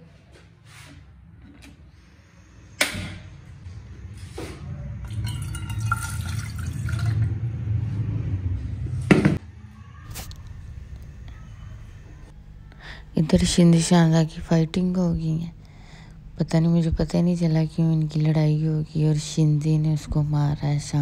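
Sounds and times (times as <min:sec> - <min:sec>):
water pouring into metal saucepan: 0:05.0 - 0:07.3.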